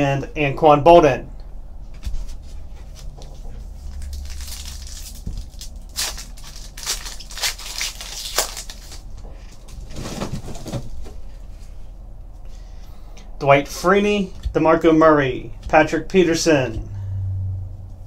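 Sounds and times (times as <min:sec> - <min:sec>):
foil wrapper tearing and crinkling: 0:03.8 - 0:09.1.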